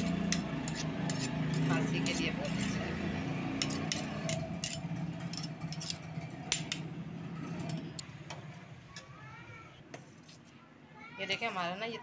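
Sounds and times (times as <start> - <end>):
spoon scraping metal pan: 0.0 - 3.0, 3.6 - 6.0.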